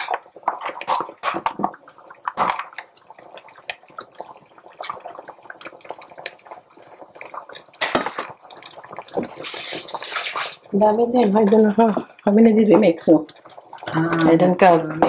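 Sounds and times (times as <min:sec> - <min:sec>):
simmering pot clicks and drips: 0:00.0 - 0:15.0
spoon scraping plastic container: 0:09.4 - 0:10.7.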